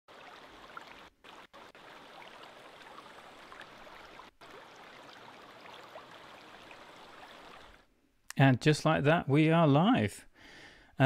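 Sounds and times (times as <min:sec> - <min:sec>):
flowing river water: 0:00.1 - 0:07.9
water trickling: 0:00.1 - 0:07.9.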